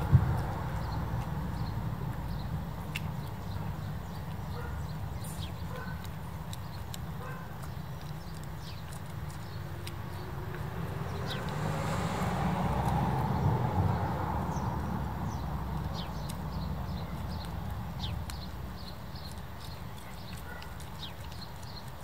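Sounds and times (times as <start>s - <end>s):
dog chewing with crunching clicks: 0.0s - 22.0s
broad rushing noise: 9.4s - 16.2s.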